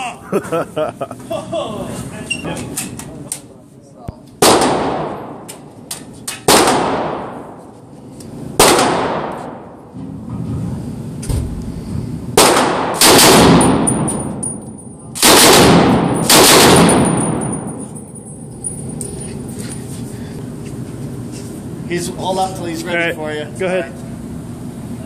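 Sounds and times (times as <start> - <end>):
rifle shots echoing indoors: 4.4 - 5.6, 6.4 - 7.6, 8.6 - 9.9, 12.4 - 17.8
full-auto rifle bursts: 12.4 - 13.9, 15.2 - 17.1.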